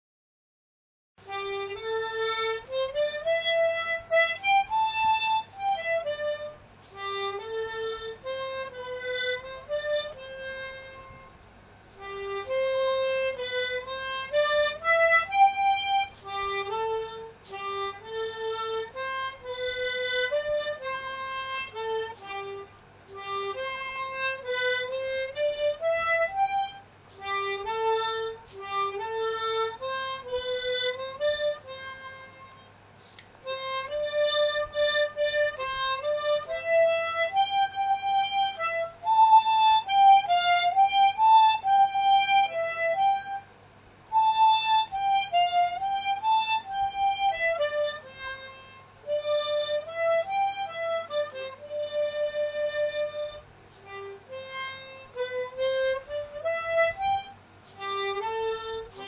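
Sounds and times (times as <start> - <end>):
harmonica melody: 1.2 - 59.0.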